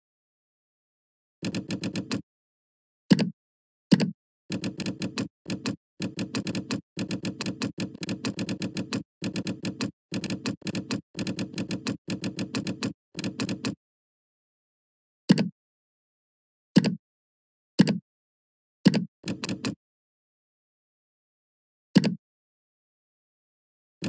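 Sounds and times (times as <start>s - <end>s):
computer keyboard typing: 1.4s - 2.2s, 3.9s - 13.8s, 18.9s - 19.8s.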